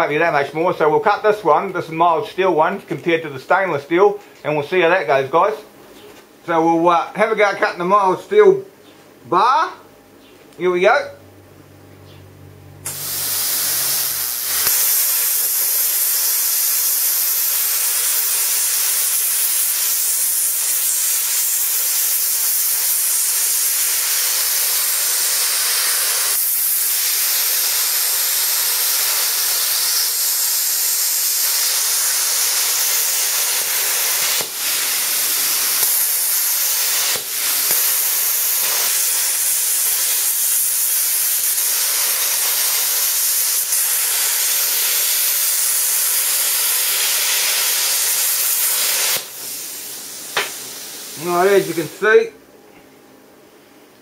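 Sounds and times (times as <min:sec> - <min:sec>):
plasma cutter hissing: 0:12.8 - 0:52.2.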